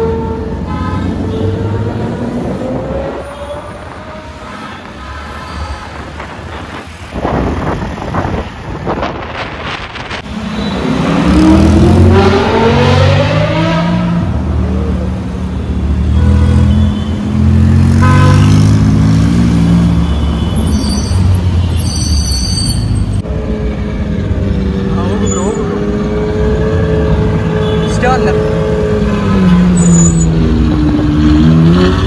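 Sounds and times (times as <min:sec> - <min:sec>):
car engine revving: 0:10.0 - 0:14.9.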